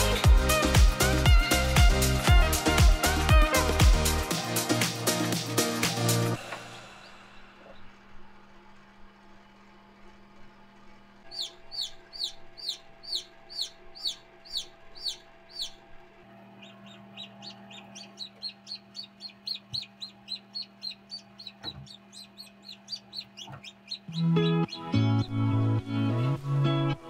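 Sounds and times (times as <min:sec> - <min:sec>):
steady low hum: 0:06.4 - 0:27.0
chick peeping: 0:11.3 - 0:15.9, 0:16.5 - 0:25.7.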